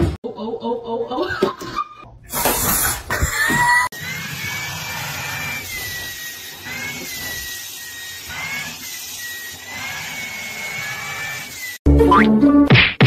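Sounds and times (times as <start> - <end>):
vacuum cleaner running: 4.0 - 11.8.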